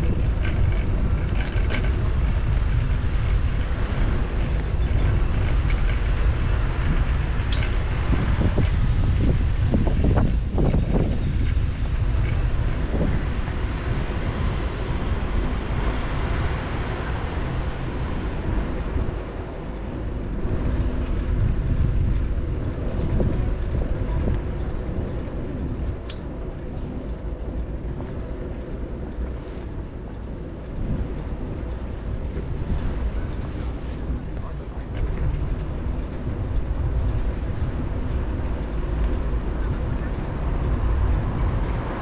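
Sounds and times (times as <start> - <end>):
road and traffic noise: 0.0 - 42.0
wind buffeting microphone: 0.0 - 42.0
sharp tick: 25.1 - 29.3.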